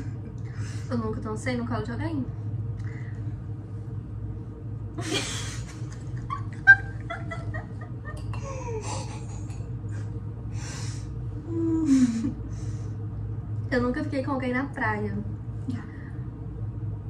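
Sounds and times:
women laughing and giggling: 5.0 - 10.1.

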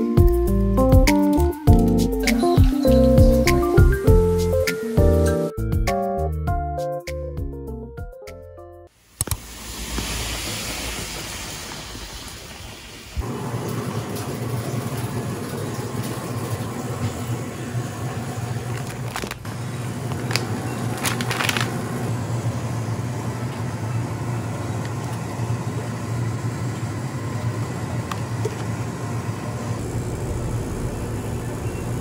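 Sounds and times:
ventilation and refrigeration hum: 12.6 - 32.0.

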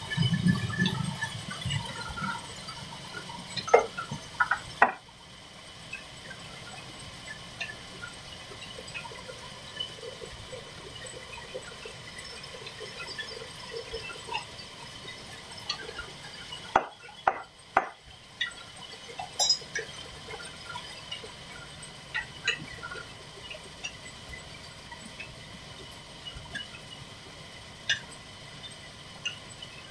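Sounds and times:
metal hand tools clinking: 19.4 - 19.7.

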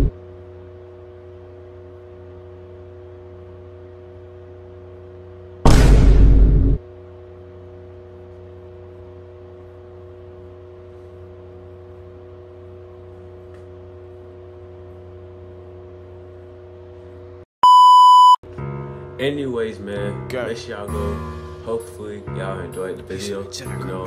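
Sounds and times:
steady low hum: 0.0 - 17.4
loud single-pitch beep: 17.6 - 18.4.

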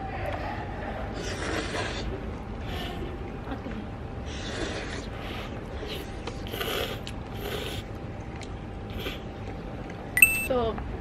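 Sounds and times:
person slurping noodles: 4.3 - 7.9.

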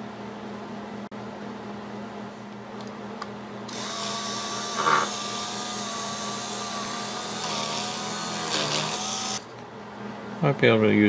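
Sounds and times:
electric drill whining: 3.7 - 9.5.

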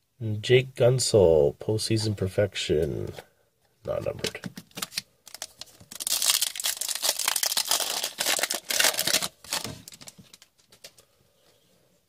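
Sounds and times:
foil wrapper crinkling: 4.7 - 11.0.

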